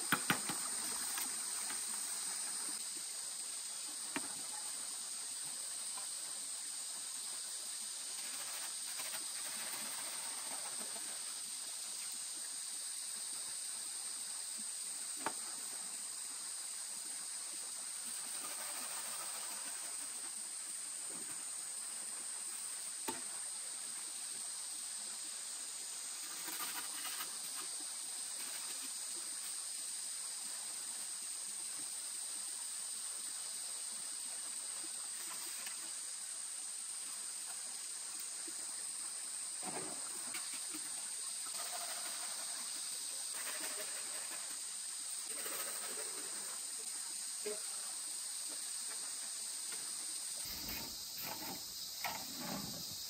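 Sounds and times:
insect chorus: 0.0 - 53.0
faint rustles and knocks: 49.7 - 53.0.

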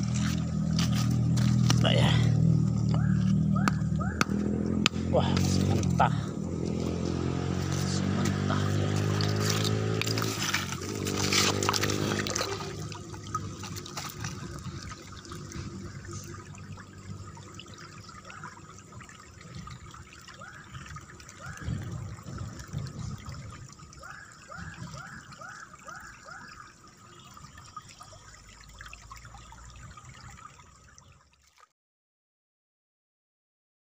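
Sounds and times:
river trickling over stones: 0.0 - 31.7.

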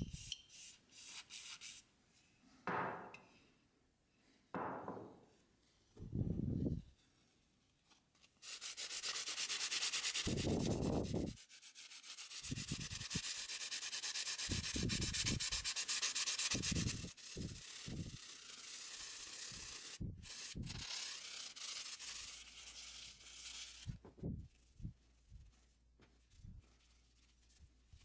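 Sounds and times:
sandpaper rasping on metal blade: 0.0 - 1.8, 8.4 - 24.0.

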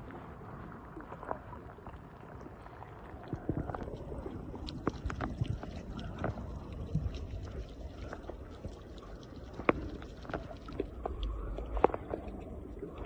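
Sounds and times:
muffled underwater rumble: 0.0 - 13.0
underwater clicks and pops: 3.3 - 13.0.

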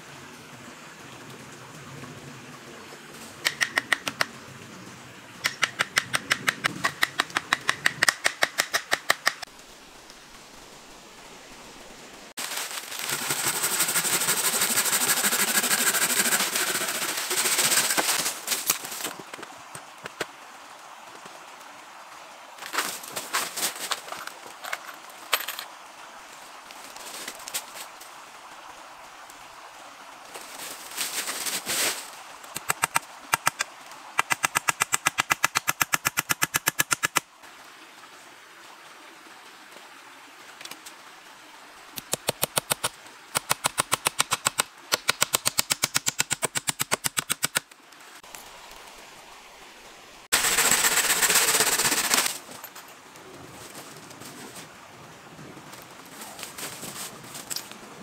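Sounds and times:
rapid sharp clicking: 34.2 - 37.2, 42.0 - 47.6
loud burst of hiss: 50.3 - 52.3.

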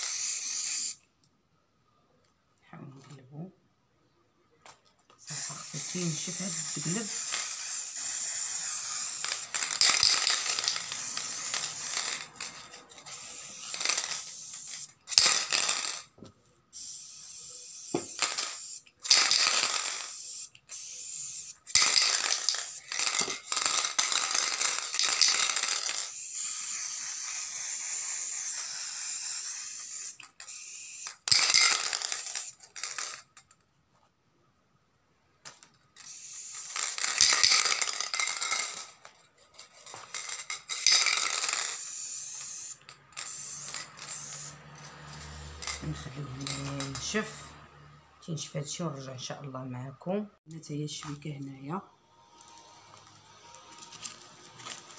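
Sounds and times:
spray-paint can hissing: 0.0 - 1.0, 5.3 - 16.1, 16.7 - 33.0, 36.0 - 38.9, 40.1 - 45.8.

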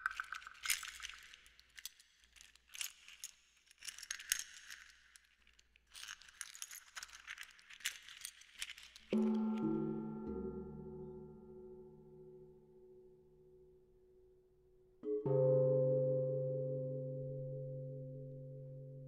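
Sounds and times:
clattering rattles: 0.0 - 9.4
small metallic jingles: 0.0 - 9.6.

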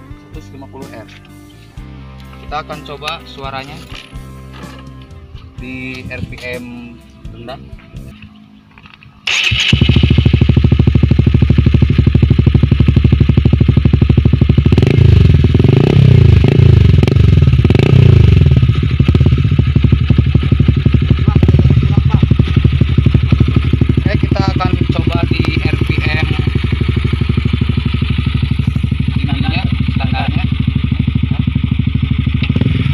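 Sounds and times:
motorcycle engine idling and revving: 7.3 - 32.9.

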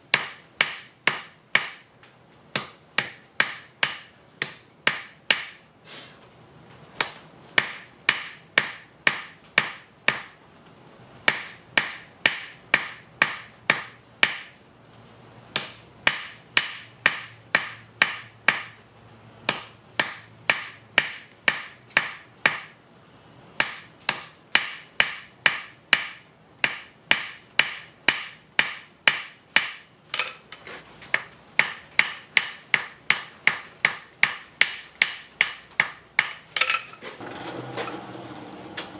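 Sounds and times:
hammer striking metal on anvil: 0.1 - 1.8, 2.6 - 5.6, 7.0 - 10.4, 11.3 - 14.6, 15.6 - 18.8, 19.5 - 22.8, 23.6 - 30.4, 31.1 - 37.0.

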